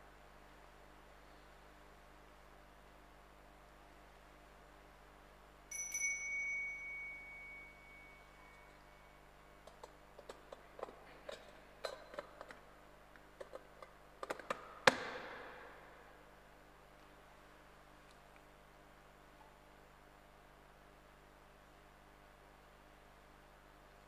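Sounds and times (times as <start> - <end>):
altar bell ringing: 5.7 - 9.3.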